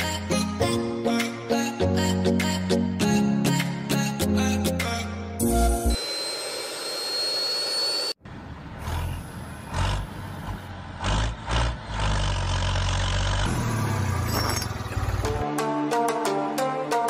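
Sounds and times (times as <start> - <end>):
music: 0.0 - 6.0, 15.2 - 17.0
motor running with whine: 5.7 - 8.2
engine rumble: 8.2 - 15.4.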